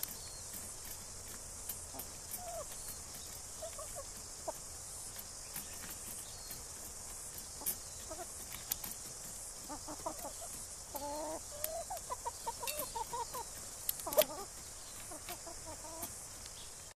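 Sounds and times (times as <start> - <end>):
chickens clucking: 0.0 - 16.9
steady hiss: 0.0 - 17.0
sharp clicks: 8.4 - 9.0, 13.8 - 14.3.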